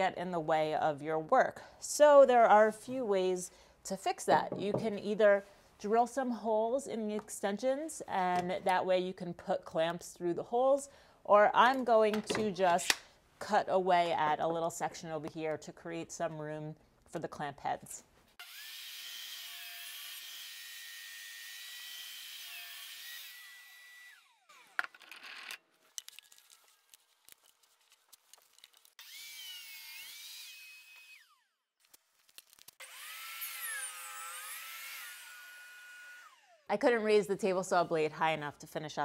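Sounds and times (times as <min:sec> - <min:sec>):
table saw cutting wood: 0:18.4 - 0:25.5, 0:29.0 - 0:31.5, 0:32.8 - 0:36.6.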